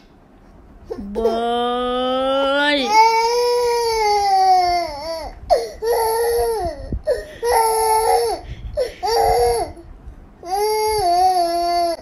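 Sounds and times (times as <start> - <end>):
baby crying: 10.4 - 12.0.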